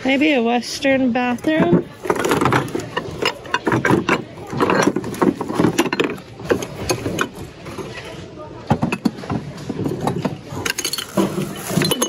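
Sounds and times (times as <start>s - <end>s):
glass and ceramic dishes clinking: 1.4s - 7.4s, 8.7s - 12.0s.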